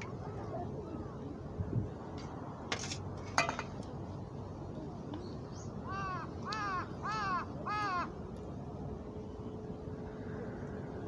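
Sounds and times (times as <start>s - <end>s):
crow cawing: 5.8s - 8.1s.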